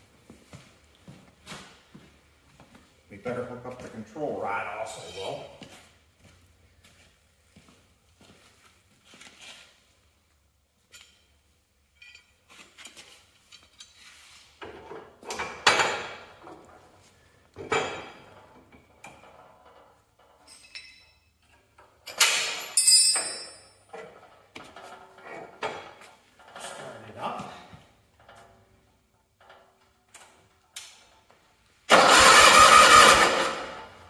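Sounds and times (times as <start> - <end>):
metal clanks and clinks: 4.9 - 5.6, 10.9 - 14.2, 17.6 - 26.7.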